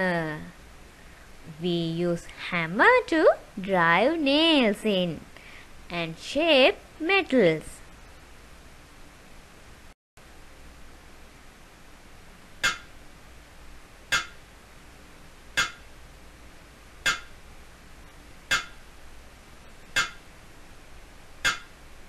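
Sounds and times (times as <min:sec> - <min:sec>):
hammer striking metal: 0:12.6 - 0:12.9, 0:14.1 - 0:14.4, 0:15.6 - 0:15.9, 0:17.0 - 0:17.4, 0:18.5 - 0:18.8, 0:20.0 - 0:20.2, 0:21.4 - 0:21.7.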